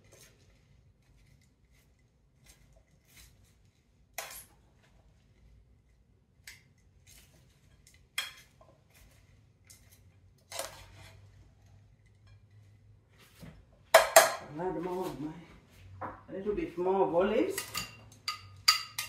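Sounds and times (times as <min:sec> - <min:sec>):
salad vegetables rustling: 0:00.0 - 0:06.3, 0:06.9 - 0:13.5
tongs clinking against glass: 0:17.5 - 0:19.0.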